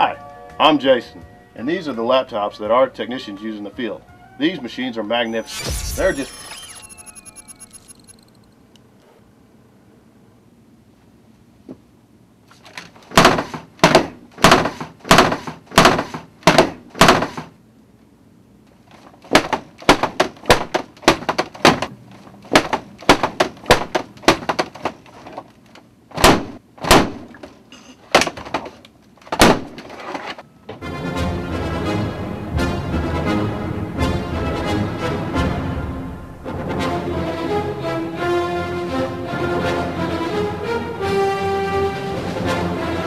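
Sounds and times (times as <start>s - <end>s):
laptop banging on a desk: 13.1s - 17.5s, 19.2s - 21.9s, 22.5s - 25.1s.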